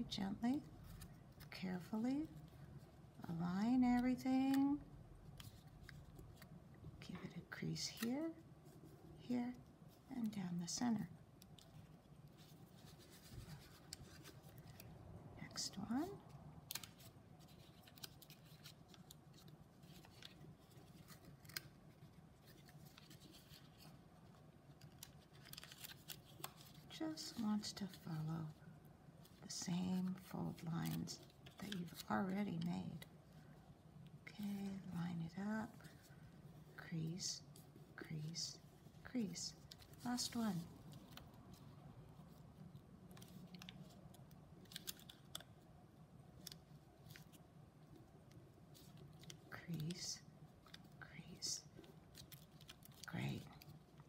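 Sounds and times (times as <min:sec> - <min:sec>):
low steady hum: 0:00.0 - 0:54.0
paper rustling and crinkling: 0:11.4 - 0:15.0, 0:15.9 - 0:28.6, 0:29.2 - 0:33.6, 0:37.5 - 0:45.6, 0:46.3 - 0:54.0.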